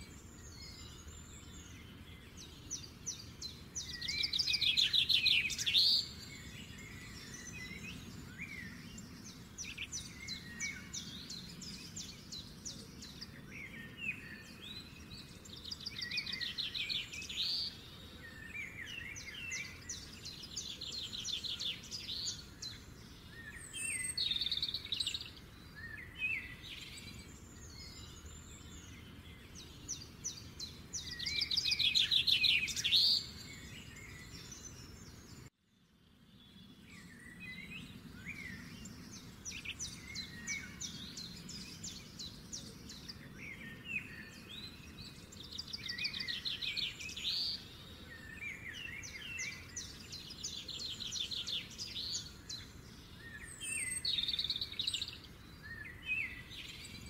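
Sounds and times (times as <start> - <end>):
birds chirping and trilling: 0.0 - 57.0.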